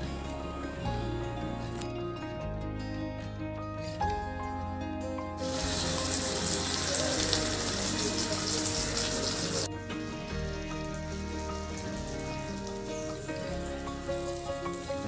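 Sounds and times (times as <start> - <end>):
background music: 0.0 - 15.0
leaves sizzling in hot oil: 5.4 - 15.0.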